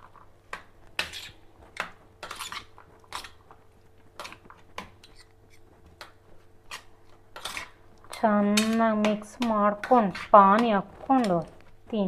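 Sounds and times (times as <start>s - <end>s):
spoon scraping metal plate: 6.7s - 7.8s.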